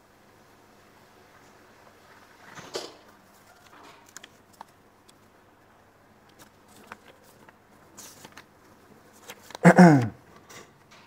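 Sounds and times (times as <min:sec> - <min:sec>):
paper rustling: 0:02.4 - 0:05.4, 0:06.2 - 0:10.5
faint paper crinkles and taps: 0:02.5 - 0:05.4, 0:06.2 - 0:09.6.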